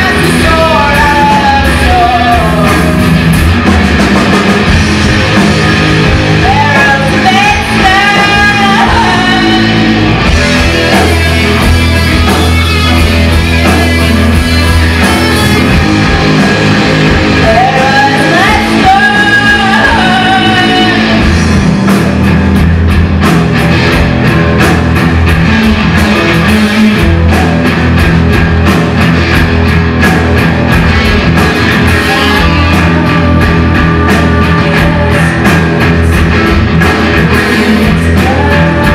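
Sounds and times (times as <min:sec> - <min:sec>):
person singing: 0:00.0 - 0:03.0, 0:06.4 - 0:10.1, 0:17.3 - 0:21.4, 0:31.8 - 0:38.9
live rock band playing: 0:00.0 - 0:38.9.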